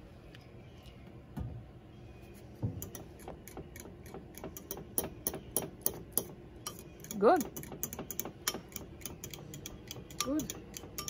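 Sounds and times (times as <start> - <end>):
spoon clicking against a bowl: 4.3 - 11.0.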